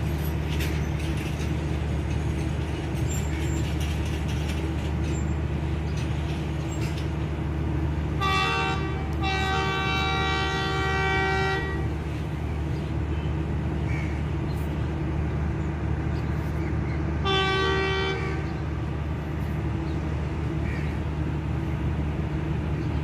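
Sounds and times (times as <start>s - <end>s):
low diesel engine rumble: 0.0s - 23.0s
locomotive horn blasts: 8.2s - 12.0s, 17.2s - 18.5s.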